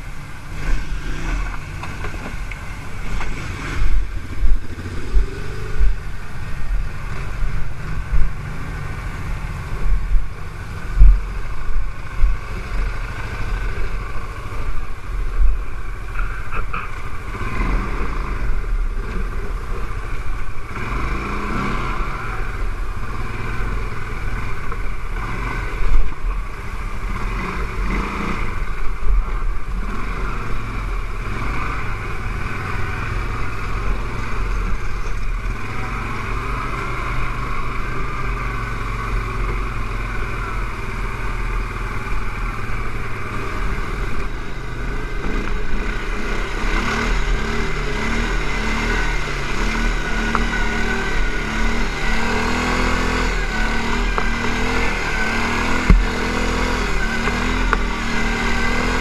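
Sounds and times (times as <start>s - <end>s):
atv engine running: 0.0s - 59.0s
sharp thump: 55.6s - 57.8s.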